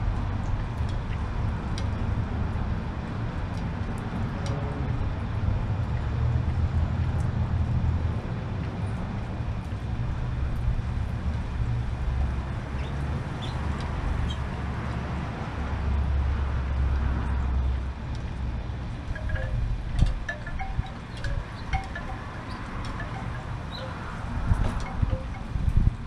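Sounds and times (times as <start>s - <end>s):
wind rumbling on microphone: 0.0s - 26.0s
wind chime tinkling: 19.1s - 25.8s.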